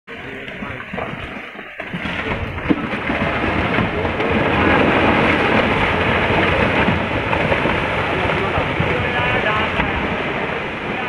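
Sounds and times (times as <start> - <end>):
low rumble: 0.1 - 11.0
rocks clattering down hillside: 0.3 - 10.4.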